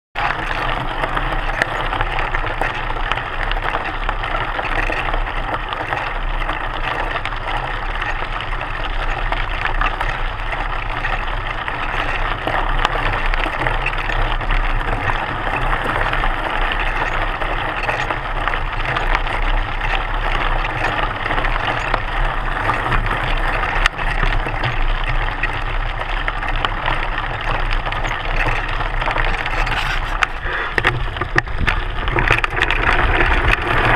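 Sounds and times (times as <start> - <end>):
bike clicks and clatter: 0.2 - 33.9
bike tyre crunching on gravel: 0.2 - 33.9.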